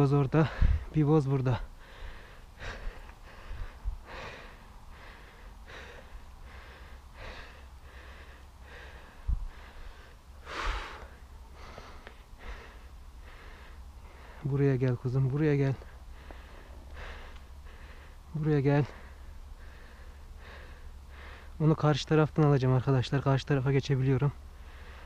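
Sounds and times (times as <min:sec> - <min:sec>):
breathy puffs: 0:01.6 - 0:14.5, 0:15.8 - 0:18.3.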